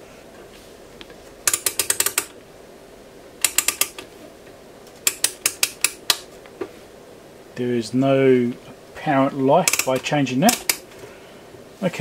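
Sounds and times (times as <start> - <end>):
rotary switch clicking: 1.5 - 2.4, 3.4 - 4.1, 5.0 - 6.3, 9.7 - 10.9.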